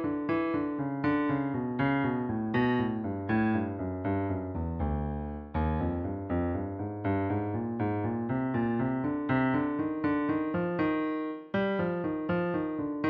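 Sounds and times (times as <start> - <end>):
piano runs over low bass chords: 1.6 - 9.2.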